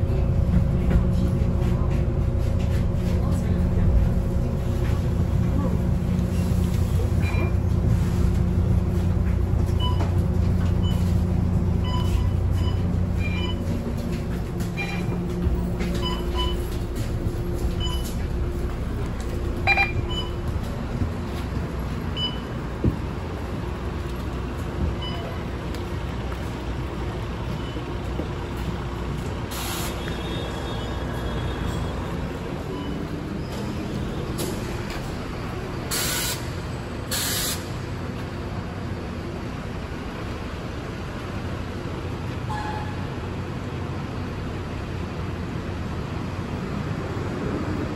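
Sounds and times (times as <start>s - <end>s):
bus diesel engine running: 0.0s - 47.9s
air brake hiss: 35.9s - 36.5s, 37.1s - 37.7s.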